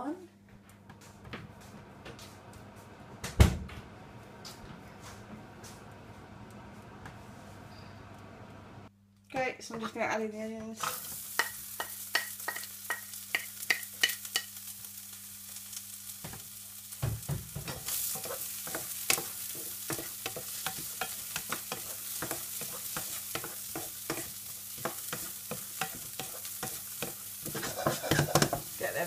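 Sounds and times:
onion sizzling in a wok: 9.8 - 29.0
wooden spatula scraping a pan: 17.6 - 29.0.

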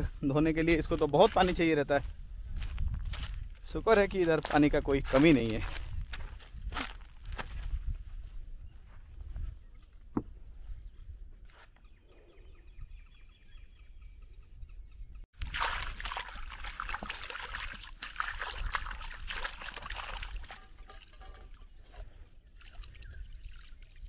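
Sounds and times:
water sloshing in plastic tub: 15.4 - 24.0.

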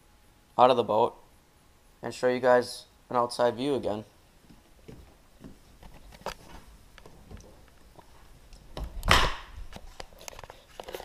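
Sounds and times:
thud of person dropping down: 9.0 - 9.6.

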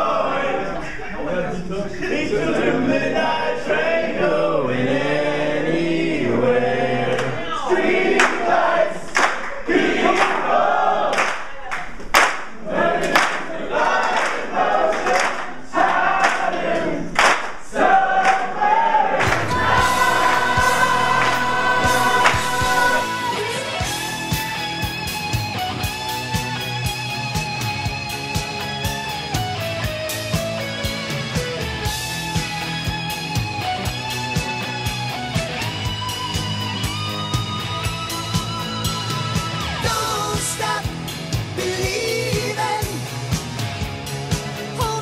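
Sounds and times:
men singing together: 1.5 - 9.1, 19.2 - 24.2, 39.8 - 43.1
crowd cheering and shouting: 17.8 - 26.9, 31.4 - 43.0
guitar music: 19.2 - 45.0.

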